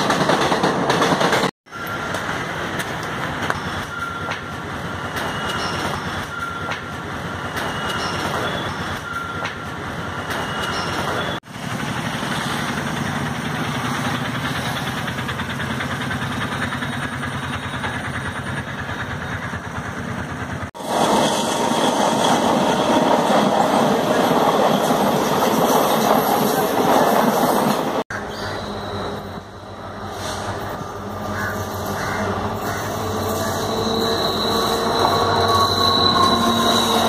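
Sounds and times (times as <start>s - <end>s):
clattering train wheels: 0.0s - 28.1s
passenger train rumbling on rails: 0.0s - 37.0s.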